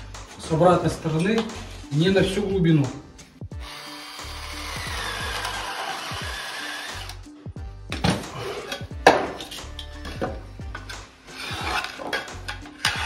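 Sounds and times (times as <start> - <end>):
background music: 0.0 - 13.0
drill hole saw grinding drywall: 3.6 - 7.2, 12.8 - 13.0
knocks and scraping: 7.9 - 13.0.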